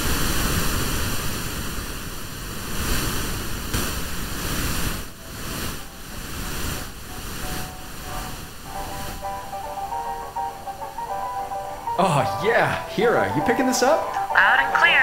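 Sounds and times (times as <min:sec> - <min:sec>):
radio static hiss: 0:00.0 - 0:15.0
faint musical tones: 0:05.1 - 0:15.0.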